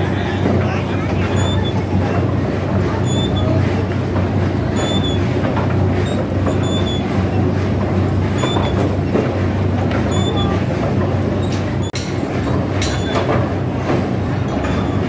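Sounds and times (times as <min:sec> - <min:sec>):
factory machinery humming: 0:00.0 - 0:15.0.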